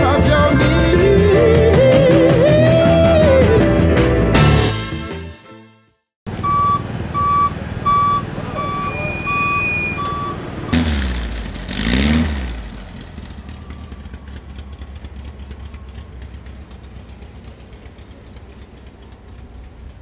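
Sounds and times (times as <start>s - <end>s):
engine revving and idling: 6.3s - 20.0s
reversing alarm beeps: 6.4s - 10.4s.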